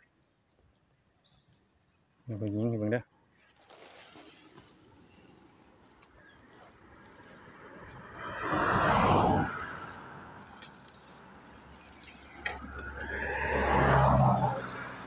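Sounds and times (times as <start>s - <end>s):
leaves and branches rustling: 3.2s - 15.0s.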